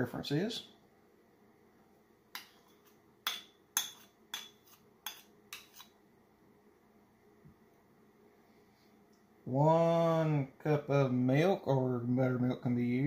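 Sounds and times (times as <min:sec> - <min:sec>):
metal spoon clinking on ceramic bowl: 0:03.3 - 0:05.8.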